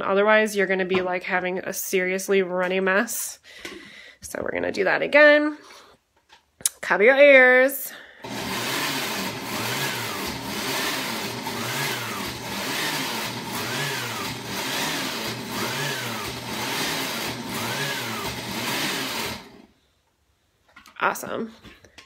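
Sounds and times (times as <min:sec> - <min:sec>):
blender motor running hard: 0:08.2 - 0:19.7.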